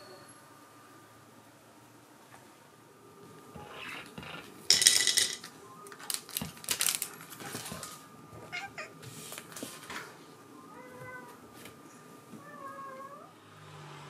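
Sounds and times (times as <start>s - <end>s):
plastic crinkling: 5.9s - 8.0s
cat meowing: 8.4s - 9.0s.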